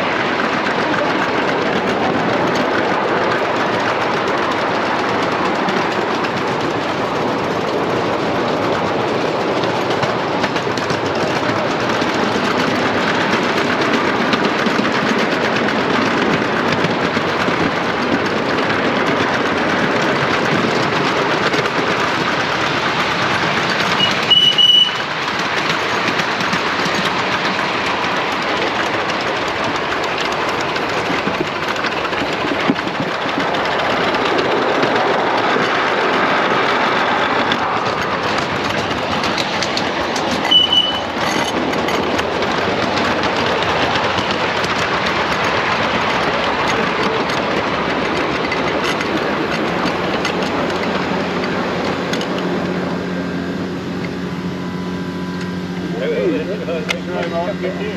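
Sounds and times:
miniature train cars rattling on track: 0.0 - 57.9.

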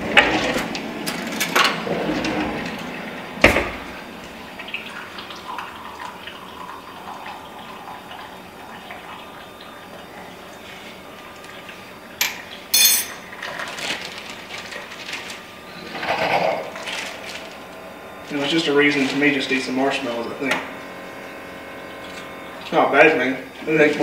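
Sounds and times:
water pouring into cup: 4.8 - 9.4.

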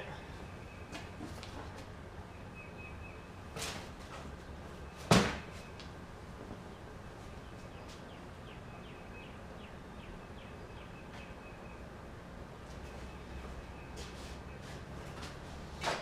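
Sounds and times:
steady background hum: 0.0 - 16.0
bird chirping: 2.2 - 3.5, 6.7 - 11.9.

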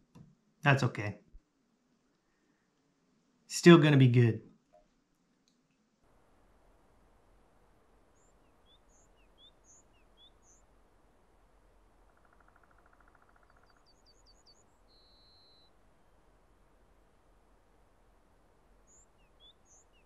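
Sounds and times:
background hiss: 0.0 - 20.0
small songbirds chirping: 4.8 - 20.0.

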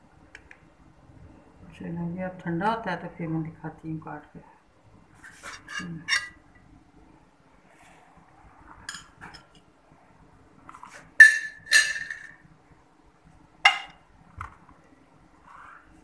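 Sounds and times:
metal server clinking on ceramic plates: 11.2 - 12.4.

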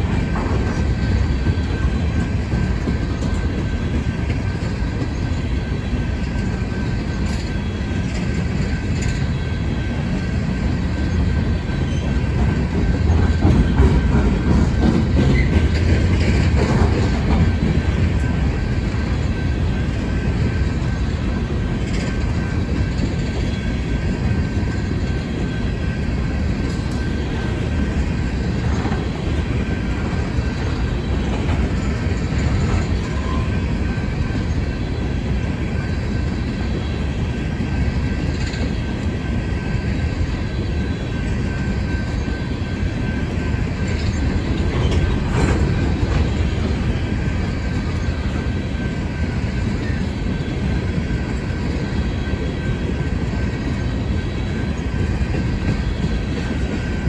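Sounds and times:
freight train wheels rumbling: 0.0 - 57.0.

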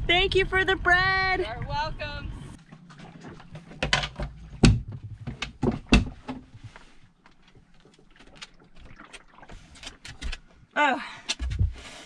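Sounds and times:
sharp knocks: 3.8 - 6.4.

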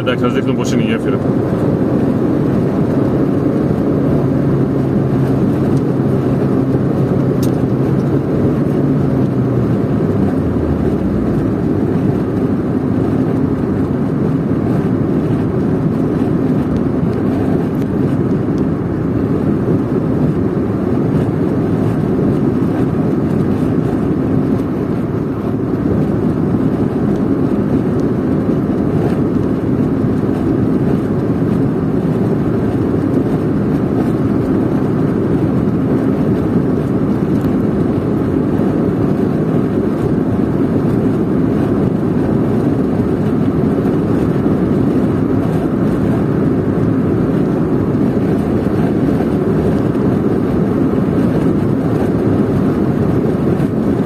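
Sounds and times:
low engine hum: 0.0 - 54.0
tyre and road noise: 0.0 - 54.0
low drone falling in pitch: 3.9 - 12.6.

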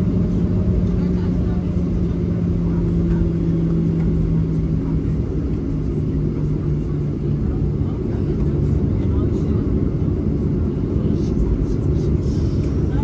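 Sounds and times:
jet engine and airflow drone: 0.0 - 13.0.

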